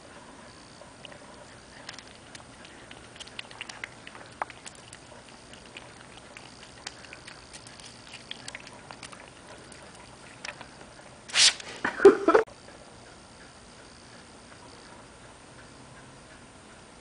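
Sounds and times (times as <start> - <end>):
cat licking water: 1.0 - 11.0
tongue clicks: 1.8 - 10.7
spray bottle hiss: 11.3 - 11.7.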